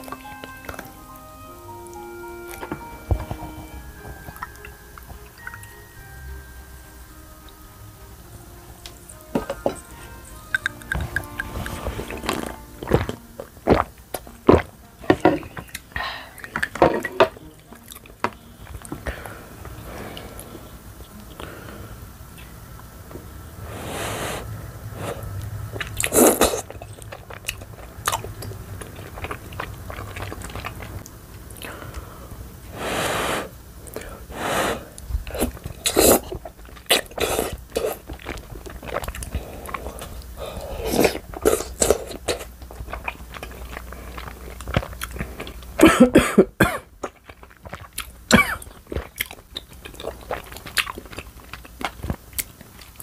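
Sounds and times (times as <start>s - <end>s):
noodles slurped and chewed: 8.8s - 21.6s, 23.6s - 45.9s, 47.0s - 53.0s
wet mouth clicks: 10.4s - 14.6s.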